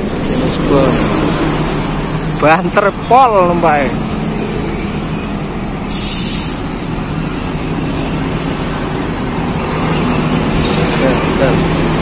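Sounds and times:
coach diesel engine running: 0:00.0 - 0:12.0
compressed air hiss: 0:05.9 - 0:06.8.

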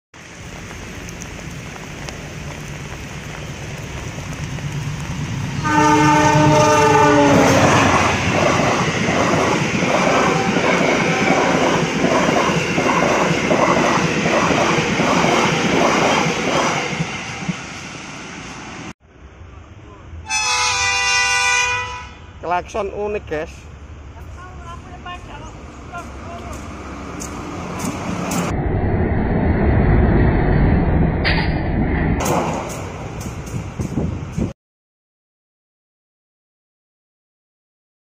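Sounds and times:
passing train coaches rushing: 0:00.2 - 0:28.6, 0:32.2 - 0:34.5
diesel locomotive rumbling: 0:00.2 - 0:34.6
locomotive horn blast: 0:05.6 - 0:08.1, 0:20.2 - 0:22.4.

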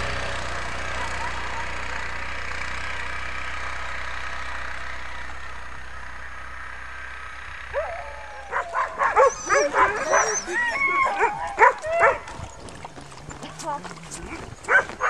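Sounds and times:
vehicle engine running: 0:00.0 - 0:15.0
dogs yipping and whining: 0:00.8 - 0:02.1, 0:07.7 - 0:15.0.

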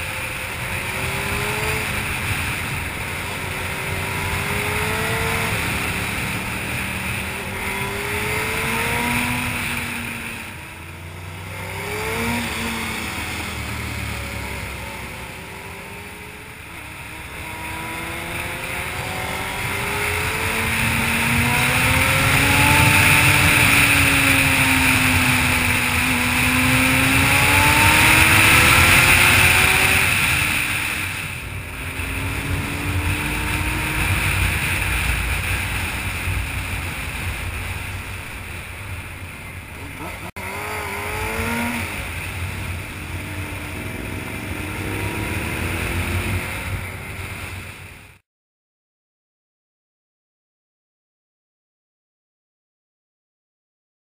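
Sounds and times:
motorcycle engine running: 0:00.0 - 0:48.2
wind noise on microphone: 0:17.2 - 0:39.8.

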